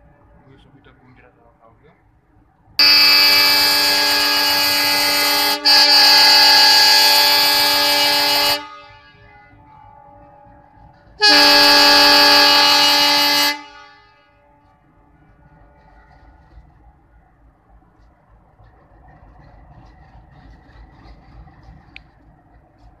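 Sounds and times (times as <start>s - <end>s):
locomotive air horn blasts: 2.8s - 16.8s.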